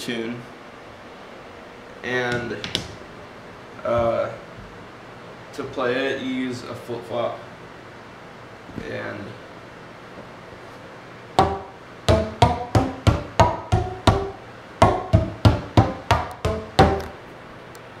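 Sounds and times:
flip-flop slapping pvc pipes: 11.4s - 17.2s.

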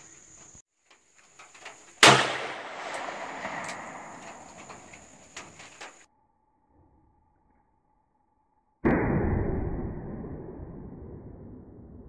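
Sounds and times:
revolver gunshot with echo: 2.0s - 5.1s.

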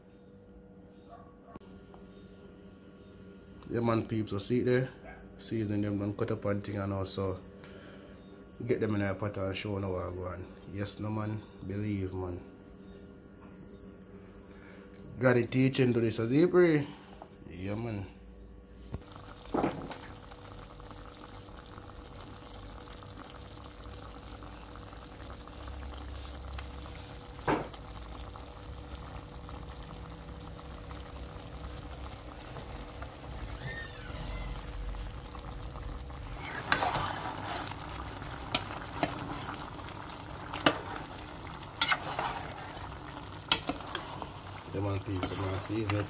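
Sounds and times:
stew bubbling in a pot: 18.9s - 46.0s.

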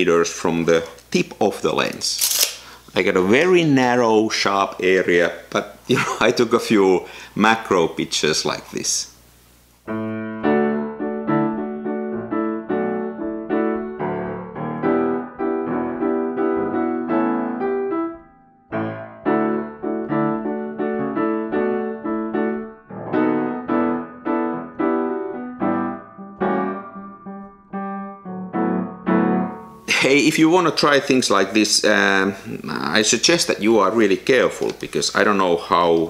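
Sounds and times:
solo piano music: 9.9s - 29.9s.

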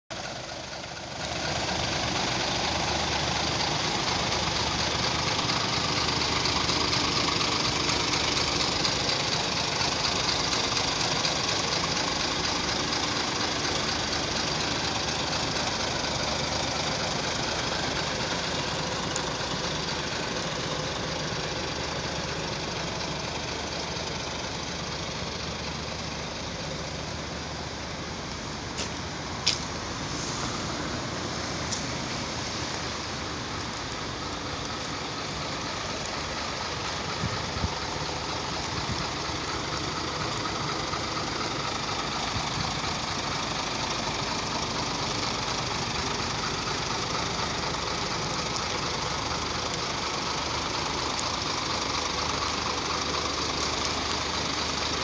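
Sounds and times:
diesel engine idling: 0.1s - 55.0s
steady hiss: 1.3s - 55.0s.

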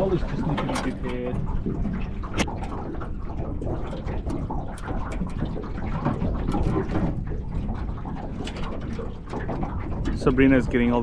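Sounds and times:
water lapping against boat hull: 0.0s - 11.0s
wind buffeting microphone: 0.0s - 11.0s.

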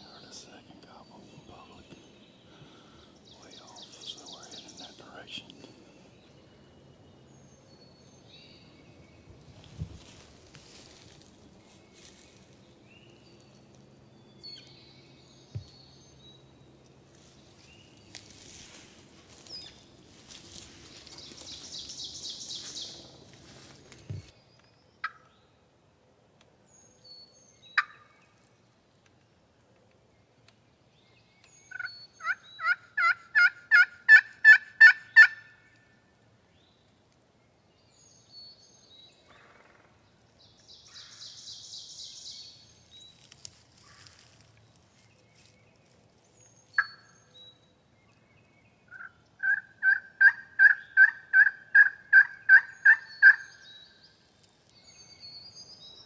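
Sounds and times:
wild turkey yelping: 31.7s - 35.6s, 48.9s - 53.5s.

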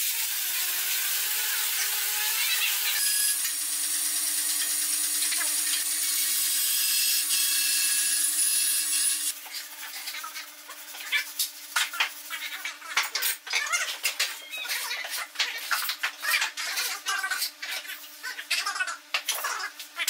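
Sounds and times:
power tool cutting wood: 0.0s - 10.2s.

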